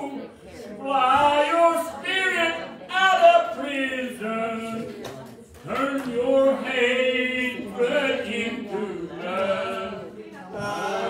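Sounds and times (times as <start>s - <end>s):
man singing unaccompanied: 0.8s - 4.8s, 5.6s - 10.2s
hand claps: 4.8s - 6.2s.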